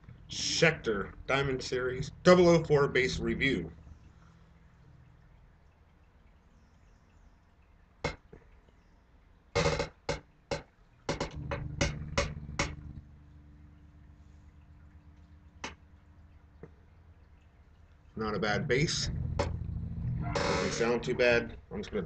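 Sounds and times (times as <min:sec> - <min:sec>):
low bass notes ringing: 0:00.0 - 0:03.9, 0:11.2 - 0:16.4, 0:18.2 - 0:21.7
electric bass string strikes: 0:11.3 - 0:13.1, 0:18.4 - 0:21.3.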